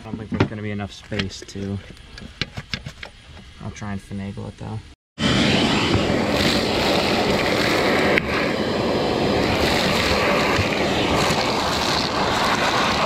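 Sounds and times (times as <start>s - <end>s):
shop vacuum sucking debris: 5.2s - 13.0s.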